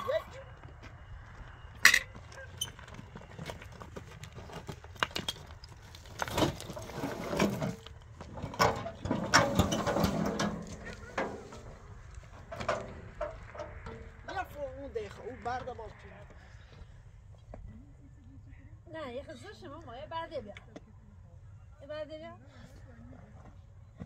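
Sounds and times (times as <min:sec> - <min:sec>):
earth and stones tumbling: 0:00.7 - 0:16.2
wheelbarrow clanking and rattling: 0:01.8 - 0:14.2.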